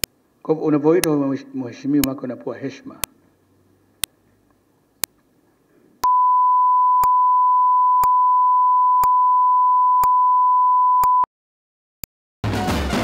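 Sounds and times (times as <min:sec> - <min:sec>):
steady test tone: 0:06.0 - 0:11.3
music: 0:12.4 - 0:13.0.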